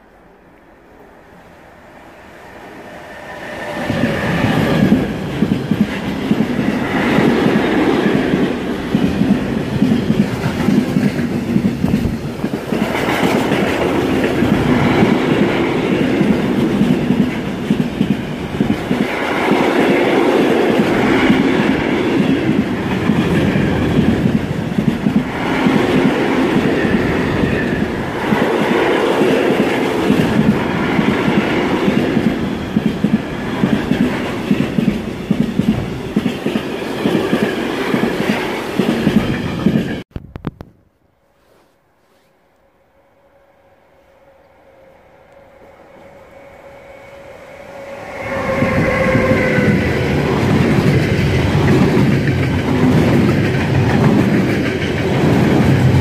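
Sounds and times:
train wheels rumbling on rails: 0:02.0 - 0:40.1, 0:45.4 - 0:56.0
clickety-clack over rail joints: 0:03.9 - 0:26.9, 0:28.2 - 0:40.0, 0:48.5 - 0:56.0.

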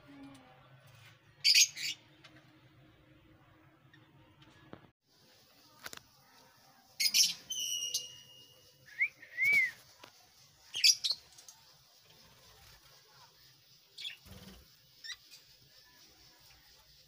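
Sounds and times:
bird whistle: 0:07.5 - 0:09.8.

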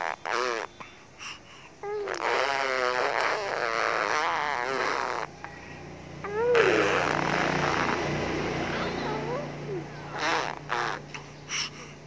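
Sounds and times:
baby blowing a raspberry: 0:00.0 - 0:00.8, 0:01.8 - 0:05.3, 0:06.3 - 0:08.1, 0:10.1 - 0:11.8.

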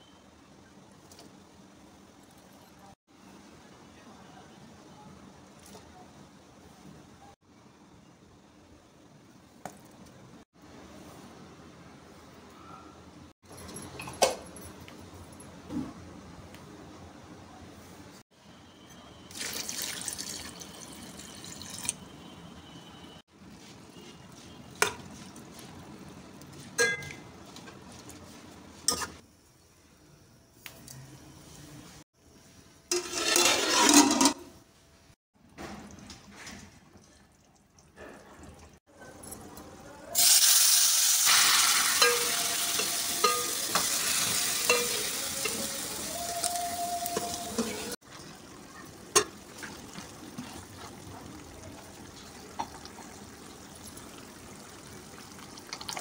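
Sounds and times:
metal spoon clinking on pot: 0:26.8 - 0:27.2, 0:41.9 - 0:45.6
meat sizzling: 0:40.2 - 0:48.0.

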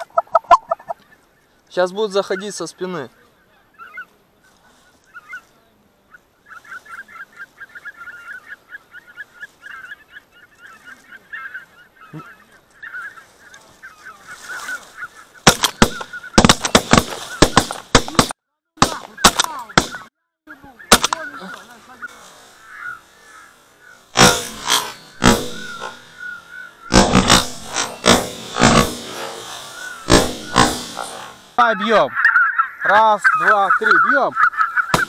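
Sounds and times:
geese honking: 0:00.0 - 0:17.9, 0:19.0 - 0:35.0
sharp cracks: 0:15.4 - 0:20.1, 0:20.9 - 0:31.6.

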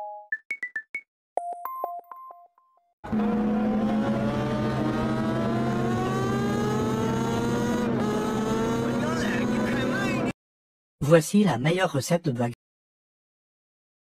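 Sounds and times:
car engine accelerating: 0:03.0 - 0:10.3.

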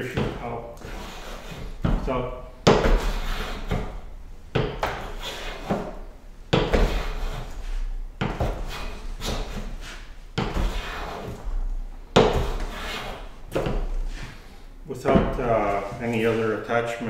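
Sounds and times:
hand plane shaving wood: 0:00.8 - 0:01.9, 0:02.9 - 0:03.9, 0:04.8 - 0:05.9, 0:06.7 - 0:07.6, 0:08.3 - 0:11.4, 0:12.2 - 0:13.2.

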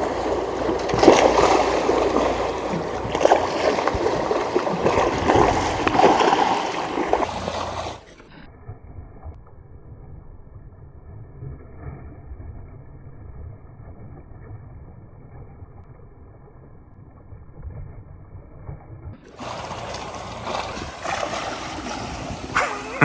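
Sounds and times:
muffled pond water churning: 0:00.0 - 0:23.0.

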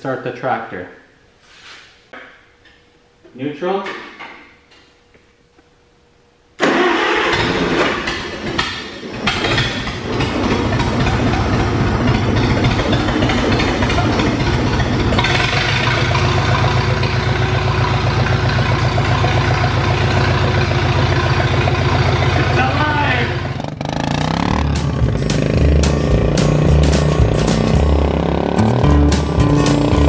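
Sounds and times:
tractor engine starting and running: 0:06.6 - 0:30.0.

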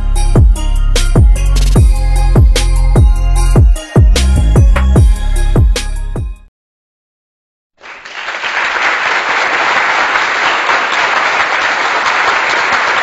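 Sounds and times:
crowd applause: 0:07.8 - 0:13.0.

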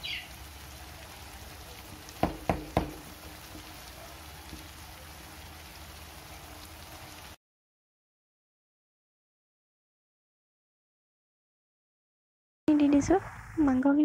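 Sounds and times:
spice paste sizzling in oil: 0:00.0 - 0:07.4
sharp knocks: 0:02.2 - 0:03.1.

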